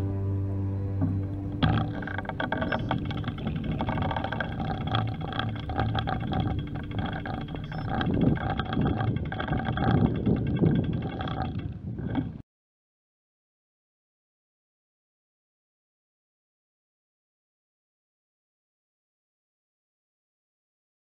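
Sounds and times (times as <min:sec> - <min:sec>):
steady hum: 0:00.0 - 0:10.4
riding noise: 0:01.0 - 0:12.4
wind rumbling on microphone: 0:01.0 - 0:12.4.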